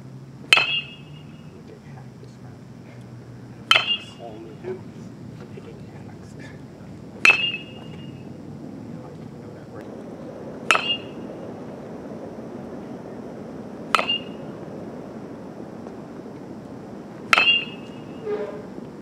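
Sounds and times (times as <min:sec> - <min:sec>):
bat hitting ball pings: 0:00.5 - 0:01.5, 0:03.6 - 0:04.8, 0:07.2 - 0:08.3, 0:10.6 - 0:11.2, 0:13.9 - 0:14.5, 0:17.3 - 0:18.8.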